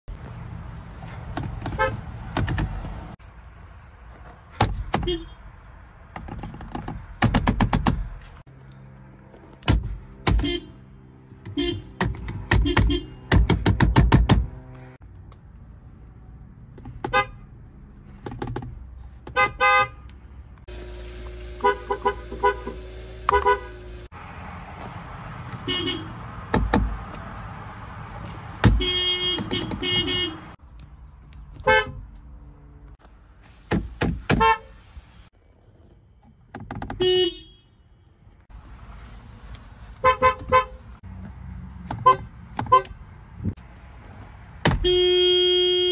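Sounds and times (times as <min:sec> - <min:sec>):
car horns honking: 0:01.6 - 0:02.1, 0:05.0 - 0:05.4, 0:10.2 - 0:13.5, 0:17.0 - 0:17.6, 0:19.3 - 0:20.1, 0:20.7 - 0:24.1, 0:25.6 - 0:26.2, 0:28.6 - 0:30.6, 0:31.6 - 0:32.0, 0:34.3 - 0:34.8, 0:36.8 - 0:38.1, 0:40.0 - 0:41.0, 0:41.9 - 0:43.0, 0:44.6 - 0:45.9.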